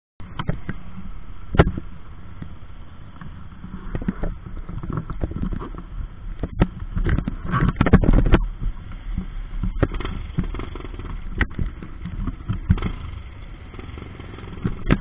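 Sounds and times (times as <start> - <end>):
quad bike engines idling: 8.4 - 15.0.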